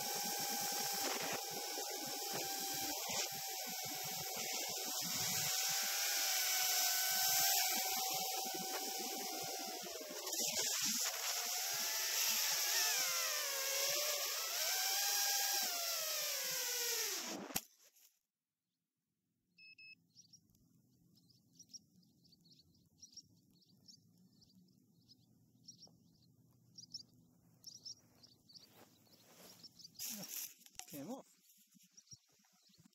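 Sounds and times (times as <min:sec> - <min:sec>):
drone motors whining: 0:00.0 - 0:17.6
short beep: 0:19.6 - 0:20.0.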